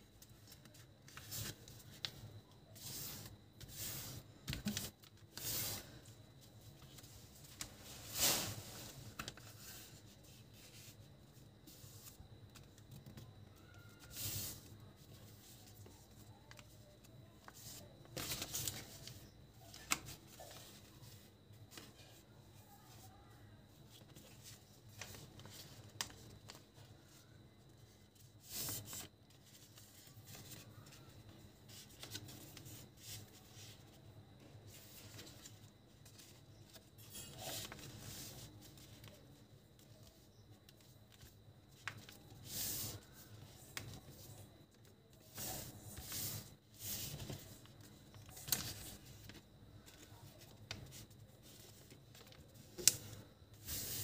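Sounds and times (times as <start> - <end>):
crisp swishes of paper: 6.6 - 11.0, 34.7 - 54.0.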